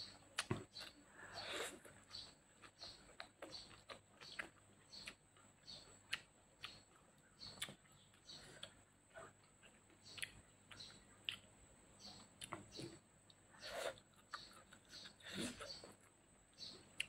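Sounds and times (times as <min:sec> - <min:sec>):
person chewing food: 0:00.0 - 0:17.0.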